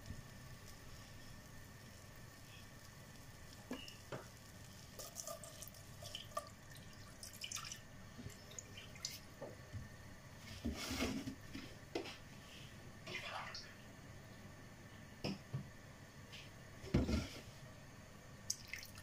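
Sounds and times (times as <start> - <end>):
milk pouring and splashing: 4.8 - 9.3, 18.5 - 19.0.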